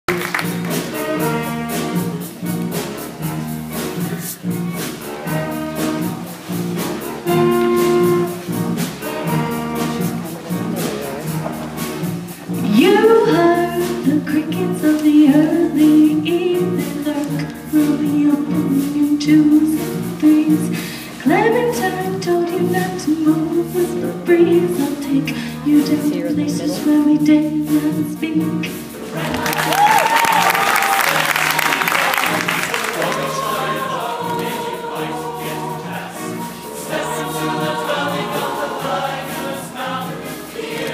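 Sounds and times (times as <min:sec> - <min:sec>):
audience applause and cheering: 0:00.0 - 0:01.4, 0:29.2 - 0:34.8
live band music: 0:00.1 - 0:40.9
choir singing: 0:28.7 - 0:40.9.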